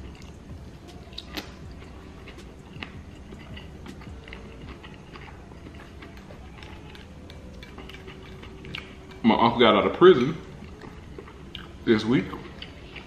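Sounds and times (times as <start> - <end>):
man chewing: 0.0 - 13.0
wet mouth clicks and smacks: 1.1 - 1.6.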